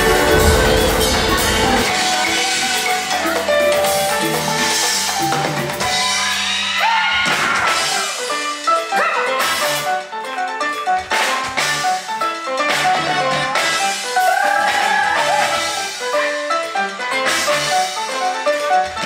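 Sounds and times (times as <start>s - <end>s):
drum kit: 0.0s - 10.1s
live band music: 0.0s - 19.0s.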